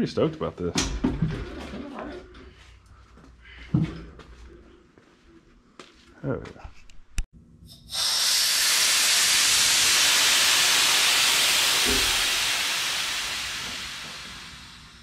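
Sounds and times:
compressed air hissing: 0:07.7 - 0:15.0.

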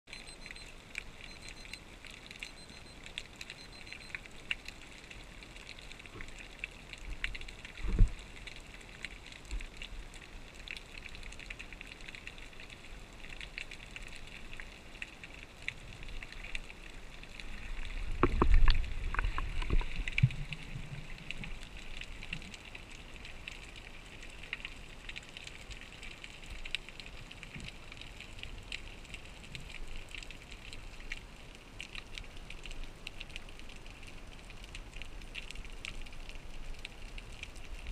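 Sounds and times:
underwater crackle of faint clicks: 0:00.1 - 0:37.9
low underwater rumbling: 0:07.0 - 0:08.5, 0:15.8 - 0:22.6.

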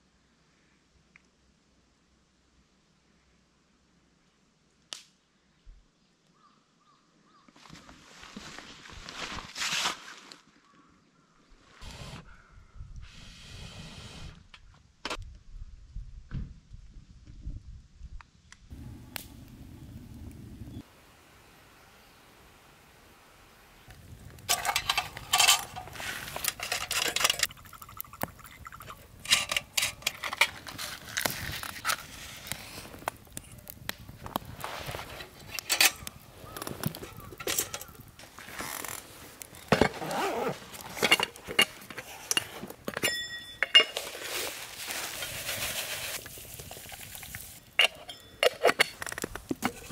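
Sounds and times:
rustling: 0:24.0 - 0:27.5, 0:28.7 - 0:49.9
metal pots and lids clinking: 0:24.5 - 0:30.8, 0:35.5 - 0:36.1, 0:37.0 - 0:38.0, 0:40.8 - 0:45.8, 0:47.8 - 0:49.9.

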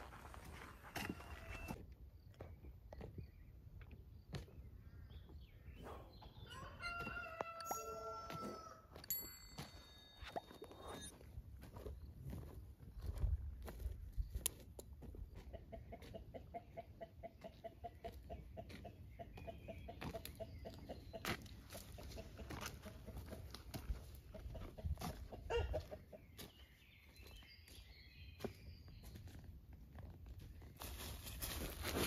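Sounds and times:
footsteps on leaf litter: 0:00.0 - 0:01.8, 0:30.4 - 0:32.0
small birds chirping: 0:01.9 - 0:07.4, 0:13.8 - 0:23.4, 0:25.5 - 0:29.5
chicken clucking: 0:15.2 - 0:26.3.

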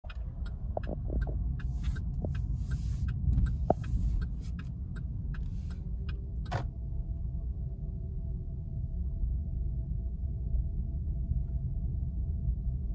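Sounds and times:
light evenly spaced ticks: 0:00.0 - 0:06.6
car driving slowly: 0:00.0 - 0:09.8.

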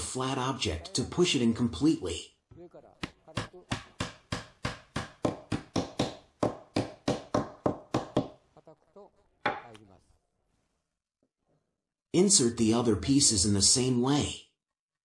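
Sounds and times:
wooden knock: 0:09.4 - 0:09.7
wooden block tapping wood: 0:09.4 - 0:09.8.

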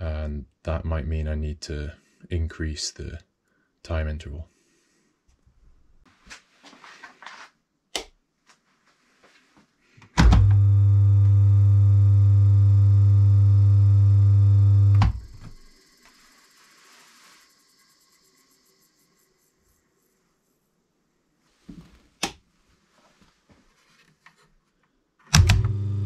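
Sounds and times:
electric motor mains hum: 0:10.2 - 0:16.0, 0:25.4 - 0:26.0.

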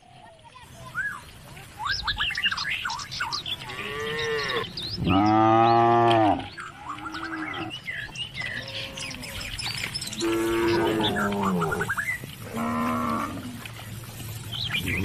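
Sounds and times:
small birds chirping: 0:00.0 - 0:15.0
cattle mooing: 0:03.7 - 0:07.7, 0:10.2 - 0:13.7.

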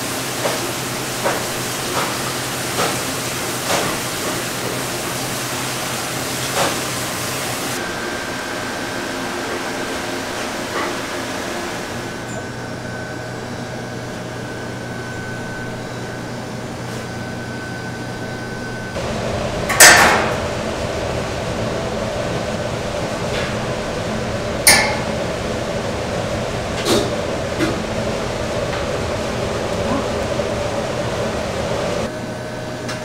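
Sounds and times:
ventilation fans humming: 0:00.0 - 0:33.0
metal hooks clanking on drum: 0:24.7 - 0:25.1.

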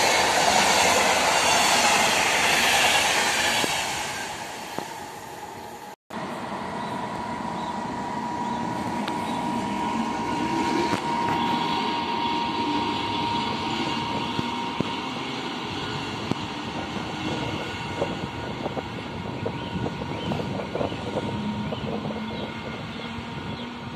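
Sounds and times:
thin high whine: 0:00.0 - 0:18.5
train rolling on rails: 0:00.0 - 0:23.9.

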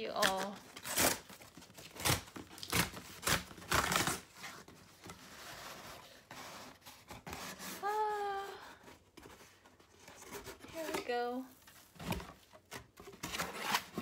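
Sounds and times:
cardboard box ripping: 0:00.2 - 0:05.8, 0:13.1 - 0:14.0
cardboard scraping and rustling: 0:00.7 - 0:07.9, 0:09.0 - 0:14.0.

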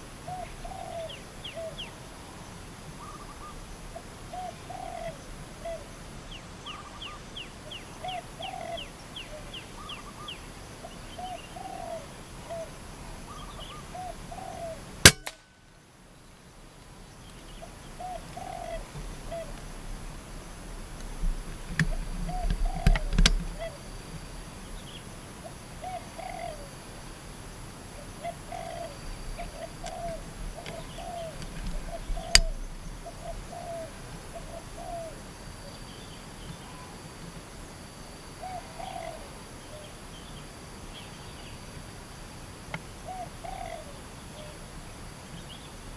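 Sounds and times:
doves cooing: 0:00.0 - 0:02.0, 0:02.9 - 0:15.2, 0:17.5 - 0:19.8, 0:21.8 - 0:23.9, 0:25.4 - 0:26.8, 0:28.0 - 0:37.0, 0:38.4 - 0:40.0, 0:43.0 - 0:44.7
air rifle shot: 0:15.0 - 0:15.5.

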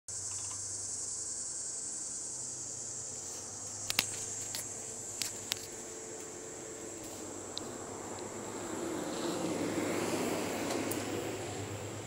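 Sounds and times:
insects droning: 0:00.1 - 0:12.0
sharp clicks: 0:00.2 - 0:00.6
train low hum: 0:00.2 - 0:12.0.

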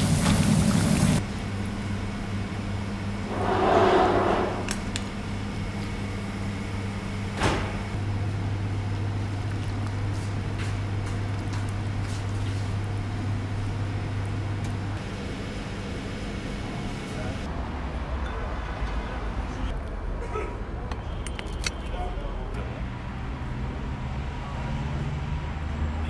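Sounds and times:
kitchen equipment humming: 0:00.0 - 0:11.9.

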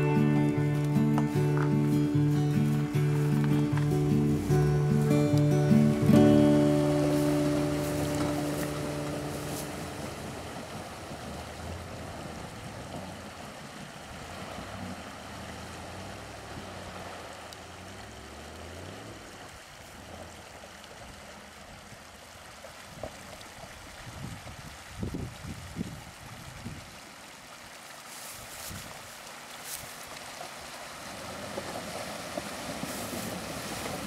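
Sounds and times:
car engine running low: 0:00.0 - 0:22.0
water rushing and splashing: 0:00.0 - 0:34.0.

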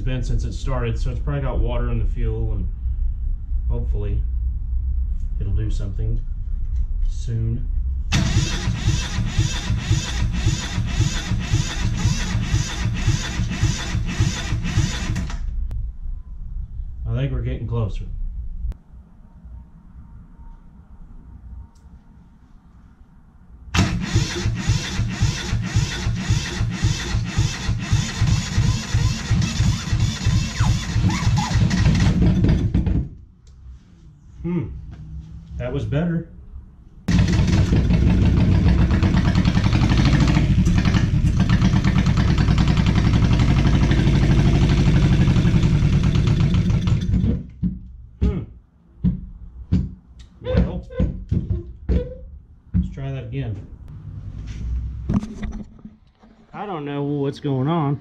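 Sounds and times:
diesel engine starting and running: 0:08.0 - 0:15.7, 0:23.7 - 0:33.0, 0:37.1 - 0:47.5.

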